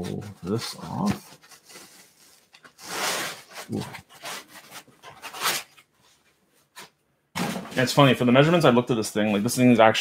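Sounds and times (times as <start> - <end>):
foam scraping against box: 0.5 - 5.7.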